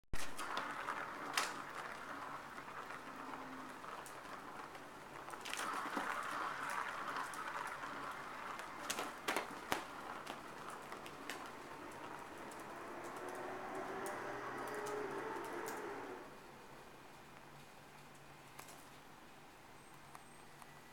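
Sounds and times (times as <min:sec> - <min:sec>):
plastic ball rattling around track: 0:00.2 - 0:16.2.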